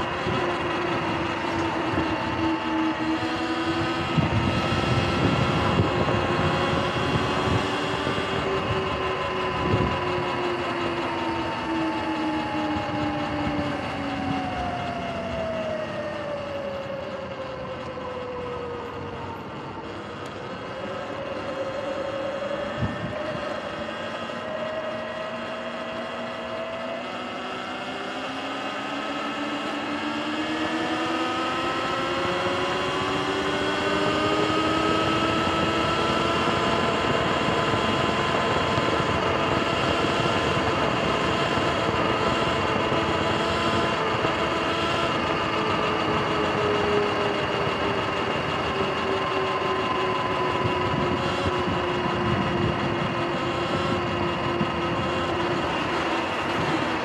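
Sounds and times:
electric motor whining: 0.0s - 57.0s.

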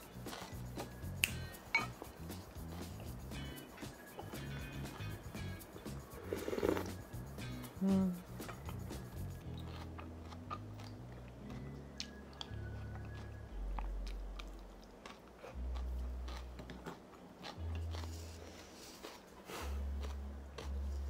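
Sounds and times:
soft background music: 0.0s - 21.0s
spoon clicking against a bowl: 1.2s - 2.0s
sipping broth: 6.2s - 7.0s.

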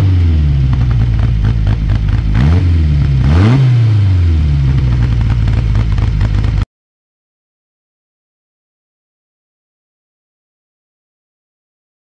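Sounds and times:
race engine idling and revving: 0.0s - 6.6s.

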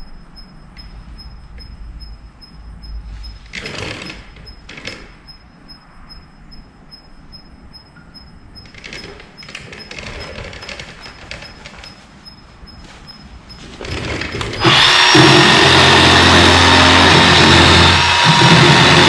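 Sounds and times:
electric chainsaw cutting wood: 14.0s - 19.0s.

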